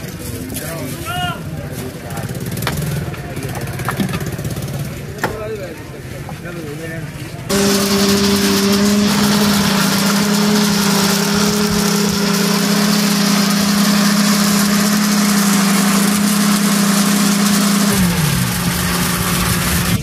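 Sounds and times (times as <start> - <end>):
blender running: 7.5 - 20.0.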